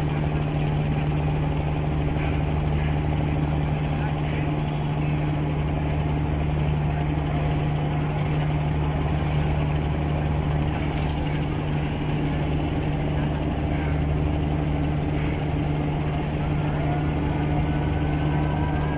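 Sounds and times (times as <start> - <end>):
boat engine hum: 0.0 - 18.9.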